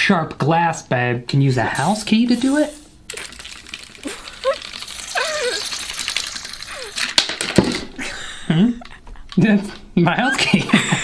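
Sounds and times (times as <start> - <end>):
keys rattling on ring: 1.8 - 7.2.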